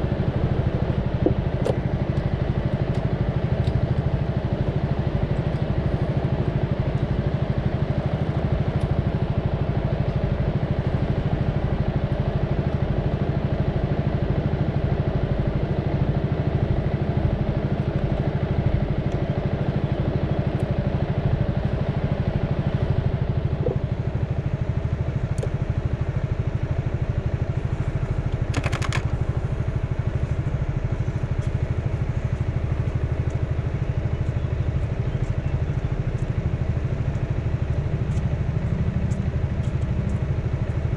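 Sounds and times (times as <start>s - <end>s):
vehicle engine running: 0.0s - 40.9s
short rattle: 28.4s - 29.4s.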